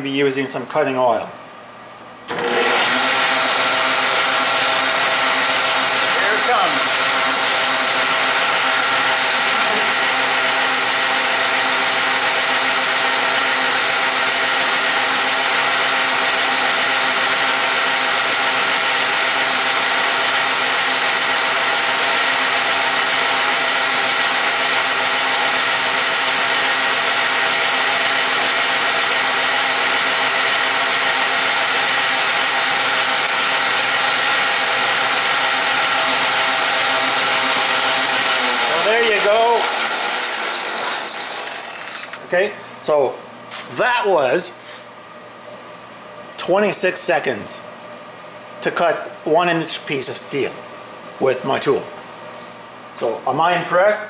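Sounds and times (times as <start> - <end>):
lathe running drone: 2.3 - 42.5
parting tool cutting steel: 33.2 - 33.8, 39.8 - 42.3.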